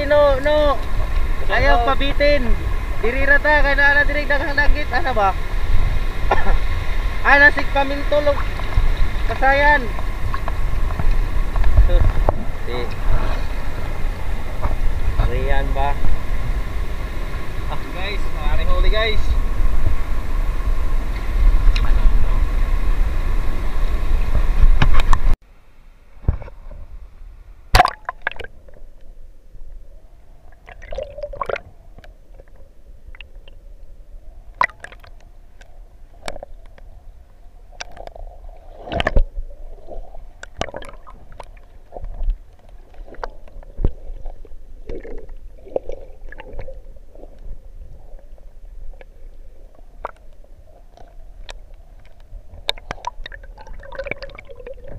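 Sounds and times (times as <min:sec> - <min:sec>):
wind buffeting microphone: 0:00.0 - 0:25.4
sea noise: 0:00.0 - 0:54.9
underwater clicks and knocks: 0:09.9 - 0:12.6, 0:24.6 - 0:25.3, 0:37.8 - 0:38.2, 0:38.9 - 0:39.4, 0:40.4 - 0:46.7, 0:50.0 - 0:53.4
muffled underwater gurgling: 0:36.3 - 0:54.9.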